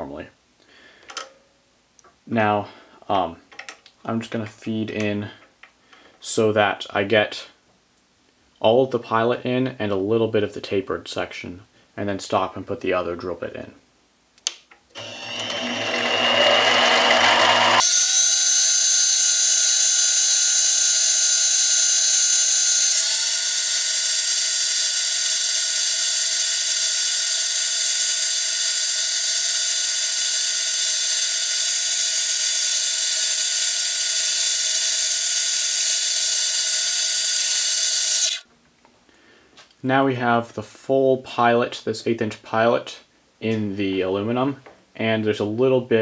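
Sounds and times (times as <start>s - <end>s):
lathe running: 15.0s - 38.4s.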